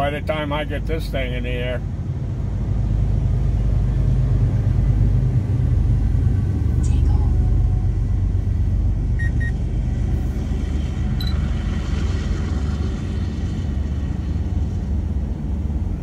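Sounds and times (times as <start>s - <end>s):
freight train rumbling past: 1.0s - 16.0s
drone propeller whine: 7.5s - 16.0s
short beeps: 9.2s - 9.6s.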